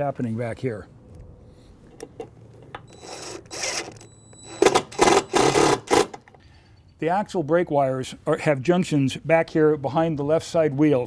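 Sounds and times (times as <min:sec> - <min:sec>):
cordless drill running: 0:02.9 - 0:06.2.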